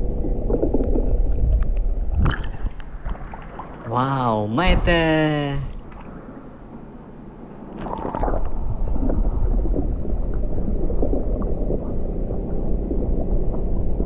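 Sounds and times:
water sloshing and gurgling: 0.0s - 14.0s
small water splashes: 2.1s - 4.0s, 7.7s - 12.0s.

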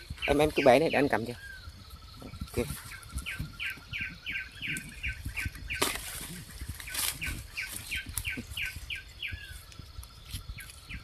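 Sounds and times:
bird or insect chirping: 0.0s - 11.0s
rustling in undergrowth: 0.0s - 11.0s
bamboo shoots snapping: 4.7s - 8.6s.

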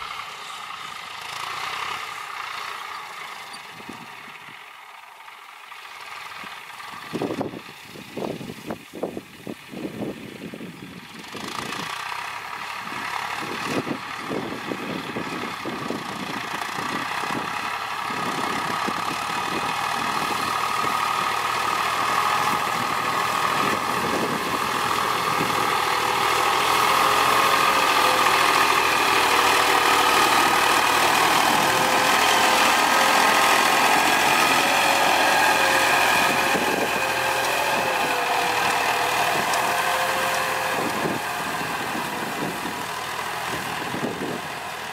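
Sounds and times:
tractor diesel engine running: 0.0s - 44.9s.

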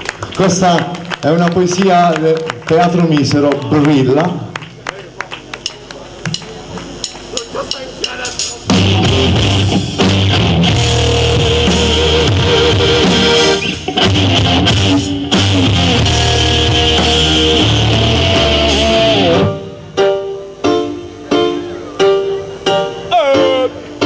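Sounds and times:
electric guitar: 0.0s - 24.0s
drums: 5.3s - 24.0s
bass guitar: 5.5s - 20.6s.

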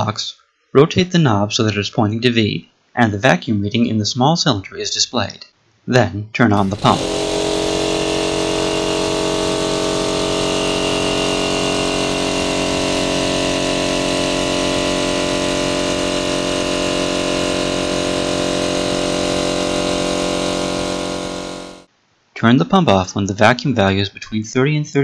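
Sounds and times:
air pump humming: 6.6s - 21.9s.

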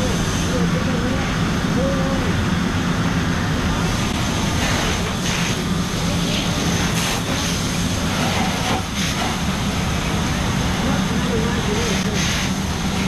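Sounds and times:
hose spraying water: 0.0s - 2.3s, 3.8s - 13.0s
fire engine pump droning: 0.0s - 13.0s.

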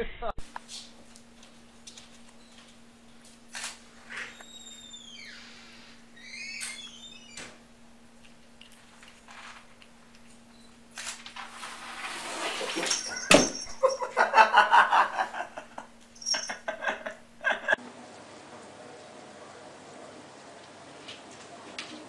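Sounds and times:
person laughing: 13.7s - 17.8s.

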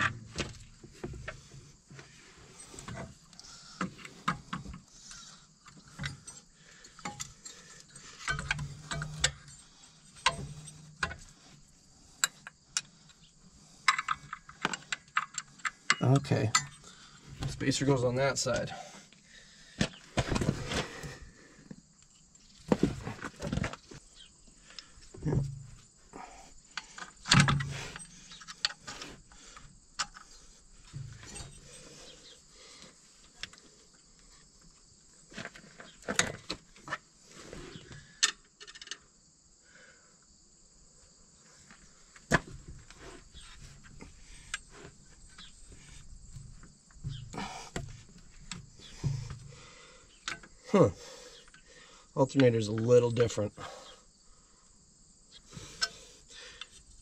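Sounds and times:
metal tools clinking: 5.7s - 11.4s, 13.8s - 18.7s, 30.0s - 32.4s.

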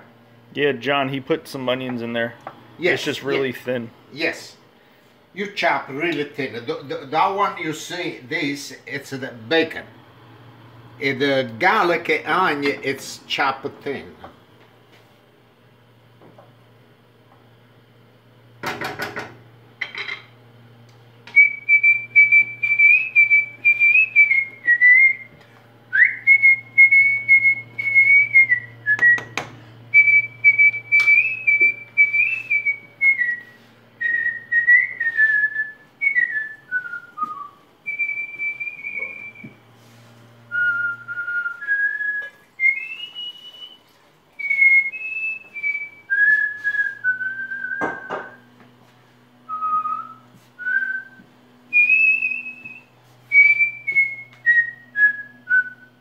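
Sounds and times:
person whistling a melody: 21.4s - 25.3s, 25.9s - 39.6s, 40.5s - 43.8s, 44.4s - 48.3s, 49.5s - 56.0s.

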